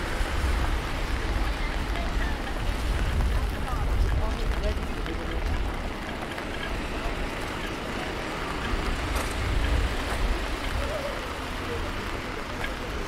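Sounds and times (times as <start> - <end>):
rain hiss: 0.0 - 13.0.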